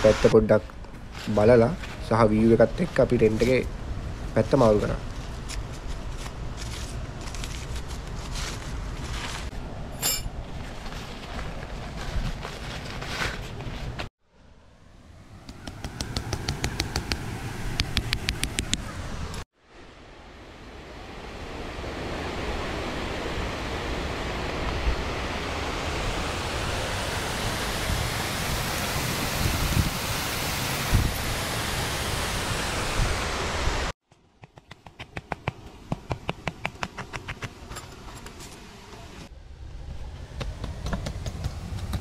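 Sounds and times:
waterfall rushing: 21.4s - 33.9s.

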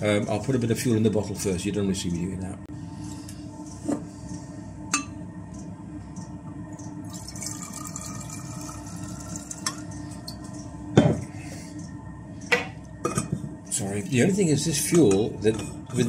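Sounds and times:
liquid pouring into metal bottle: 7.1s - 9.9s.

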